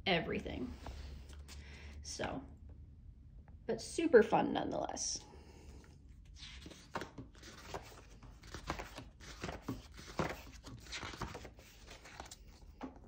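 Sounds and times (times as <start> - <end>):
paper pages turning: 6.2 - 13.0.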